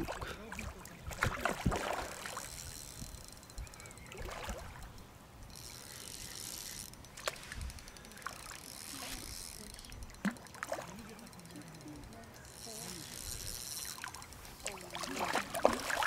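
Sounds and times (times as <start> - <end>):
water splashing: 0.0 - 2.6, 4.1 - 4.9, 8.2 - 11.2, 13.8 - 16.0
fishing reel clicking: 2.1 - 16.0.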